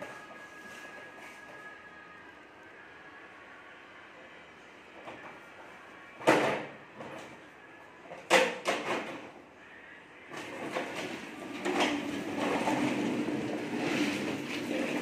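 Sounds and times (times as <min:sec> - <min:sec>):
plastic wheels rumbling on tiles: 0:10.3 - 0:15.0.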